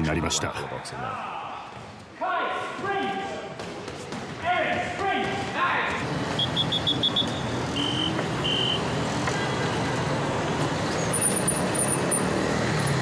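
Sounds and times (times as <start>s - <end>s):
passing cars and scooters: 6.0s - 13.0s.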